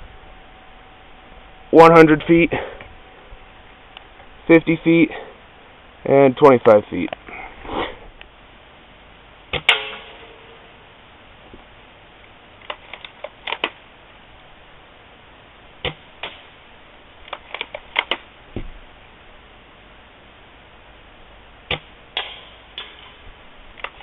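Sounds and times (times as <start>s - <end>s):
rifle handling clicks and clacks: 12.6s - 13.8s, 17.2s - 18.2s, 23.8s - 24.0s.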